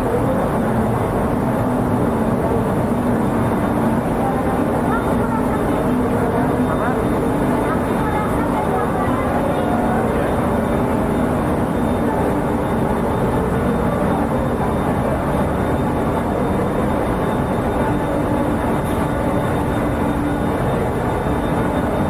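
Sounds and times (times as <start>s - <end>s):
ferry engines rumbling: 0.0s - 22.0s.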